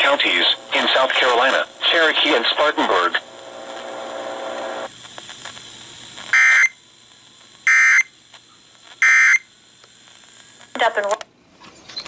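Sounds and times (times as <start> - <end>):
buzzing data burst squawks: 6.3 - 6.8, 7.6 - 8.1, 9.0 - 9.5.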